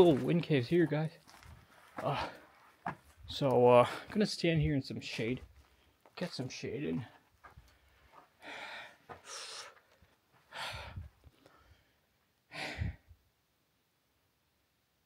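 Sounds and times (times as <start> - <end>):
man breathing heavily: 1.4 - 2.7, 5.6 - 6.0, 7.1 - 13.1.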